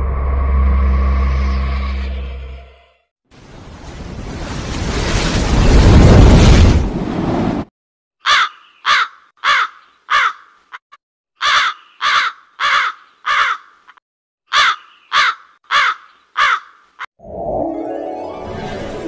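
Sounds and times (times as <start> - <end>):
crow cawing: 8.2 - 10.8, 11.4 - 17.0.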